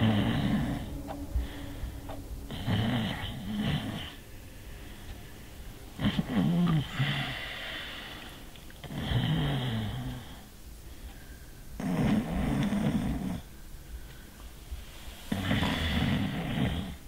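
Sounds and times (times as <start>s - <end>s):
person snoring: 0.0s - 4.8s, 6.0s - 8.2s, 15.3s - 17.0s.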